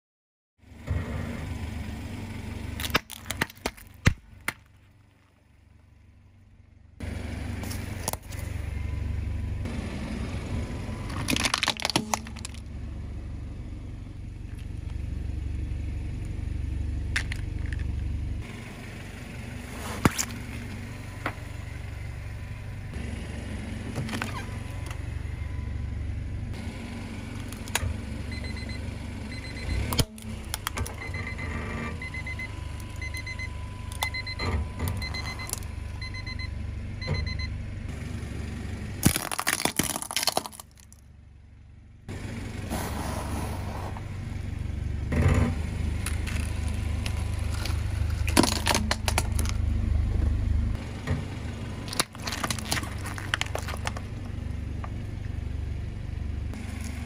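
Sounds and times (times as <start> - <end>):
car engine idling: 0.6 - 57.0
plastic objects cracking under tyre: 2.8 - 5.5, 11.1 - 12.7, 20.0 - 20.4, 24.0 - 25.0, 29.9 - 31.0, 34.9 - 35.7, 39.0 - 41.0, 46.0 - 49.6, 51.8 - 55.0
alarm clock beeping: 31.0 - 37.5.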